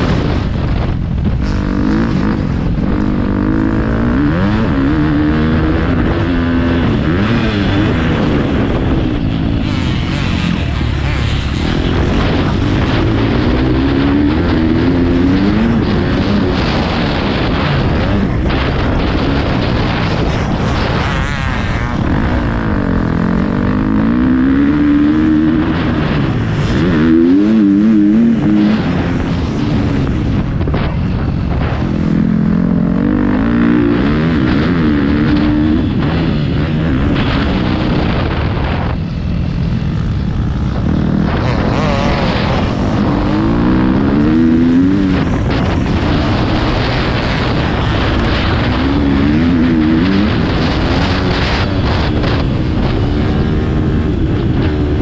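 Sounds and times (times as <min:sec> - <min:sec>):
motocross bike engine revving: 0:00.0 - 0:55.0
steady rough noise: 0:00.0 - 0:55.0.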